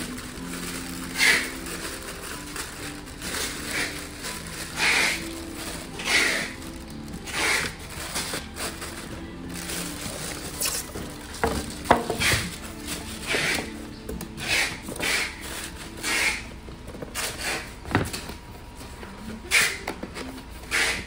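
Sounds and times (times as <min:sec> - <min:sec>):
cardboard scraping: 0:00.0 - 0:18.3
plastic bag rustling: 0:00.0 - 0:18.8
box knocking against box: 0:11.4 - 0:12.5.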